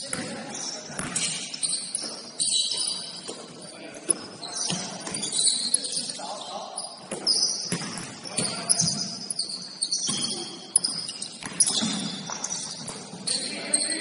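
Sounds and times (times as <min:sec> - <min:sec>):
sneakers squeaking on floor: 0:00.0 - 0:14.0
basketball bouncing: 0:07.1 - 0:09.1, 0:10.0 - 0:13.2.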